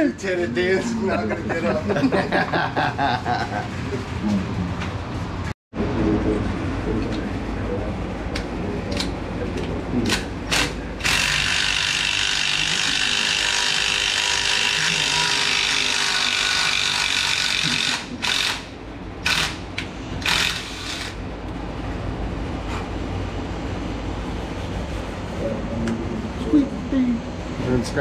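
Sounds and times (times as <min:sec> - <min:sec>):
milling machine drilling metal: 0:10.5 - 0:18.6.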